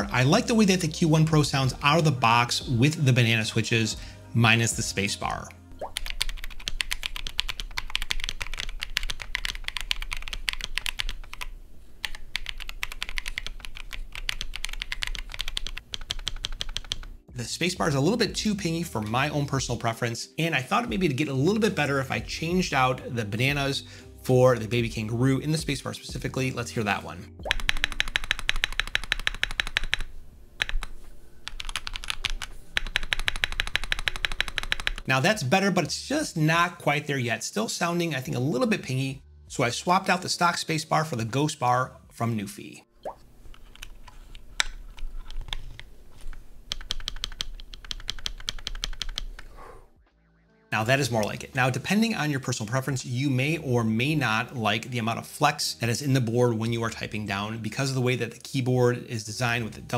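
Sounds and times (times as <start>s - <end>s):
mechanical keyboard typing: 6.0s - 17.2s, 27.5s - 35.1s, 44.6s - 49.5s.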